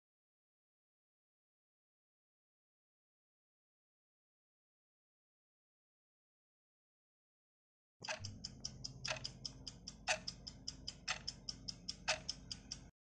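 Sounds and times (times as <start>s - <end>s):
clock ticking: 8.0s - 12.9s
faint low hum: 8.0s - 12.9s.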